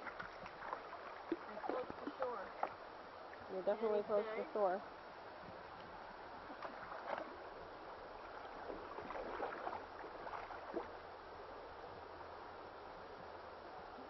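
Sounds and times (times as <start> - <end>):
water lapping around canoe: 0.0 - 3.7, 5.4 - 11.2
paddle dips: 0.0 - 4.0, 5.4 - 11.2.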